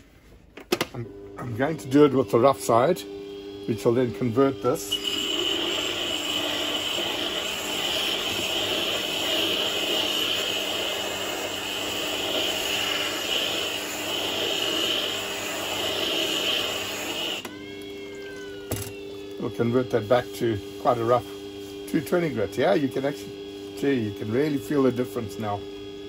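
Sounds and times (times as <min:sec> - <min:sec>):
sharpener motor hum: 0:01.6 - 0:17.9
grader scraping grindstone: 0:04.9 - 0:17.4.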